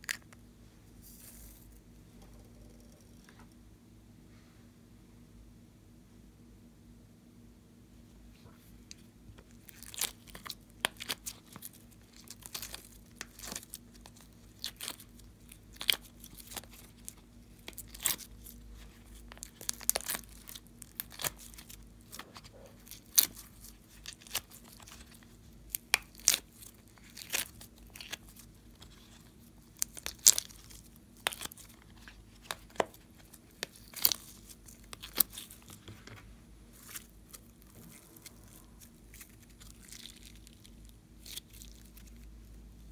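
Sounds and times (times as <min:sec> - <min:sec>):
slime sticky pops and crackles: 0:25.7 - 0:28.4.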